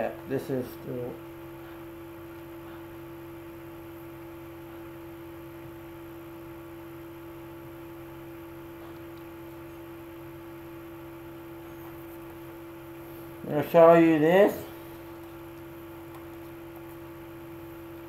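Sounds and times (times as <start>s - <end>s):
electrical hum: 0.0s - 18.0s.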